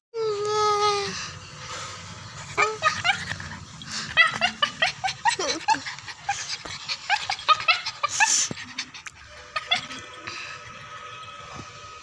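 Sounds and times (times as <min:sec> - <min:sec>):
dog whimpering: 0:02.5 - 0:10.1.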